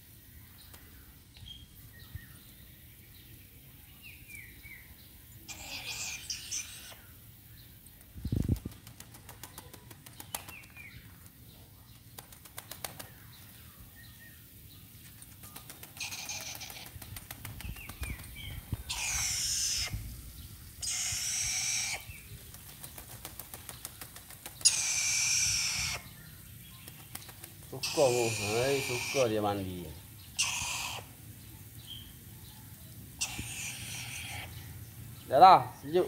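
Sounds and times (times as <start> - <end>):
bird shaking its wings: 8.3 - 11.4, 12.0 - 13.2, 15.2 - 18.4, 22.4 - 24.7, 26.8 - 27.8.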